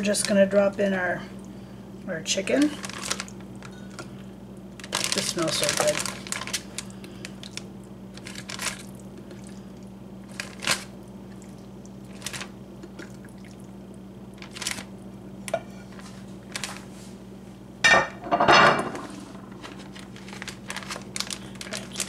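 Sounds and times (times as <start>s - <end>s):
steady low hum: 0.0s - 22.0s
plastic bag crinkling: 2.5s - 4.1s, 4.7s - 9.5s, 10.2s - 11.0s, 12.1s - 13.1s, 14.3s - 14.9s, 16.0s - 17.0s, 19.5s - 22.0s
brine squishing: 2.6s - 15.1s.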